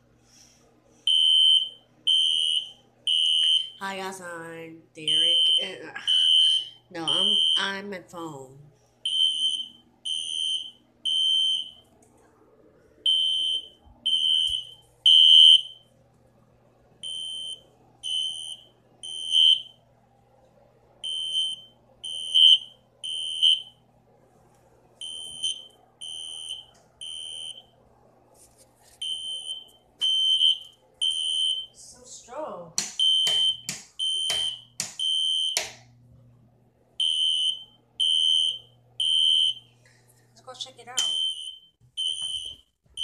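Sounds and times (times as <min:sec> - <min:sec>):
fire alarm beeping: 0:01.1 - 0:03.8, 0:05.0 - 0:07.9, 0:09.0 - 0:11.9, 0:13.0 - 0:15.9, 0:17.0 - 0:19.8, 0:21.0 - 0:23.8, 0:25.0 - 0:27.7, 0:29.0 - 0:31.8, 0:33.0 - 0:35.8, 0:37.0 - 0:39.7, 0:41.0 - 0:43.0.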